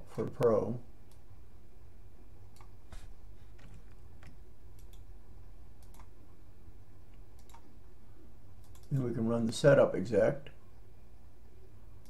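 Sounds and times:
faint low hum: 0:00.0 - 0:12.0
computer mouse and keyboard clicks: 0:02.5 - 0:05.1, 0:05.8 - 0:06.1, 0:07.4 - 0:07.7, 0:08.6 - 0:09.0.

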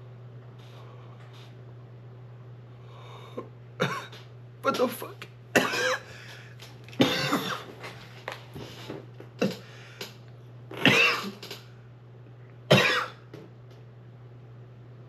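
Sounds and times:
man clearing throat: 0:03.8 - 0:05.0, 0:05.6 - 0:06.1, 0:07.0 - 0:07.7, 0:10.7 - 0:11.6, 0:12.7 - 0:13.2
man coughing hard: 0:03.8 - 0:06.1, 0:07.0 - 0:07.7, 0:10.8 - 0:11.4, 0:12.7 - 0:13.2.

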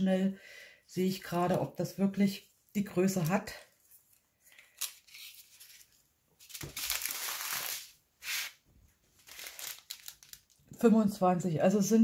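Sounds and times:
canvas and plastic film rustling: 0:09.1 - 0:10.7.

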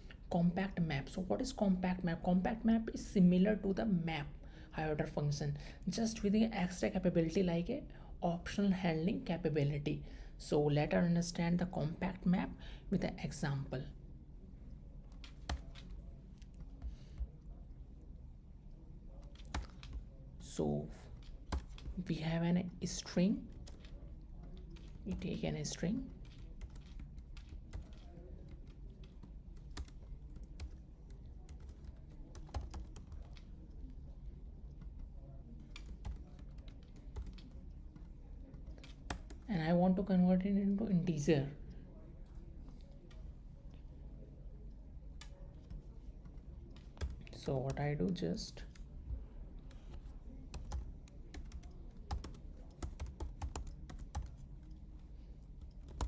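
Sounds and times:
typing on computer keyboard: 0:15.1 - 0:16.9, 0:19.2 - 0:20.1, 0:21.1 - 0:22.0, 0:23.5 - 0:25.3, 0:26.1 - 0:33.9, 0:34.7 - 0:39.5, 0:50.5 - 0:54.8, 0:55.6 - 0:56.0.

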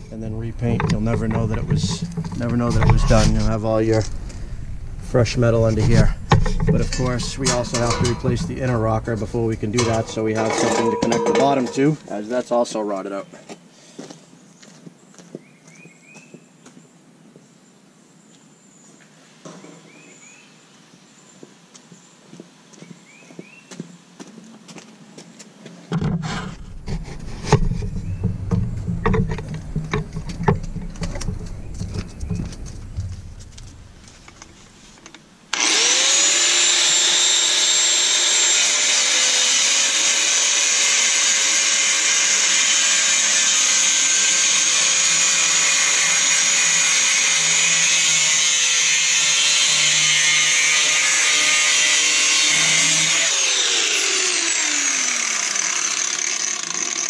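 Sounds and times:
knocks and clatter: 0:00.0 - 0:11.8, 0:25.9 - 0:35.2
angle grinder cutting sheet metal: 0:05.5 - 0:12.0, 0:35.5 - 0:57.0.

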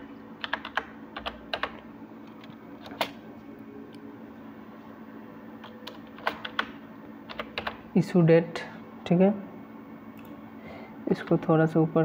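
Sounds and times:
faint steady hum: 0:00.0 - 0:12.0
computer keyboard typing: 0:00.4 - 0:03.2, 0:05.6 - 0:07.8.

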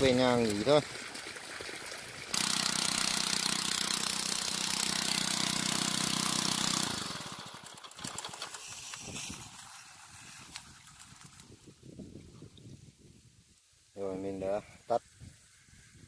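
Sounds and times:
motorbike engine running water pump: 0:00.0 - 0:11.4.

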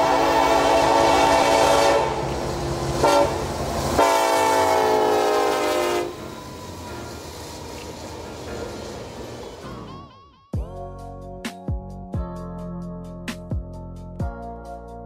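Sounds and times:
locomotive air horn blasts: 0:00.0 - 0:02.4, 0:03.0 - 0:06.3.

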